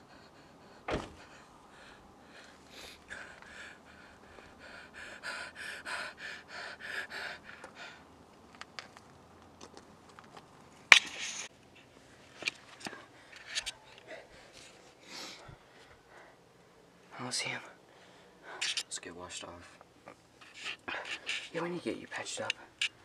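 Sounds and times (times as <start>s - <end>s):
person panting rapidly: 0.0s - 8.1s, 12.8s - 16.4s.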